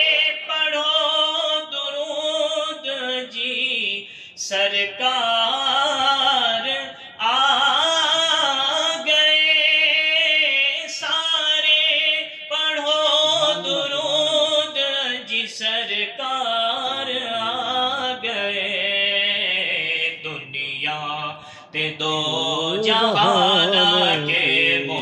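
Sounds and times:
man singing into microphone: 0:00.0 - 0:25.0
breaths between phrases: 0:04.0 - 0:04.4, 0:13.4 - 0:13.9, 0:21.4 - 0:21.8.

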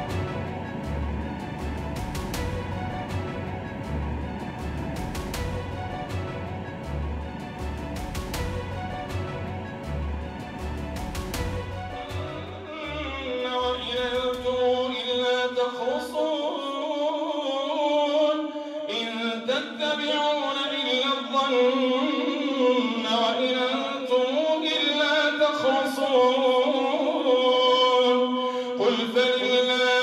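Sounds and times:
low theme music: 0:00.0 - 0:15.3
man chanting through a microphone: 0:12.5 - 0:30.0.

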